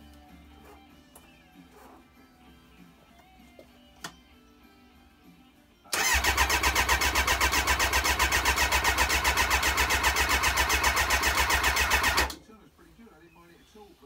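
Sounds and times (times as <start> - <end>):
motorcycle engine cranking: 5.9 - 12.4.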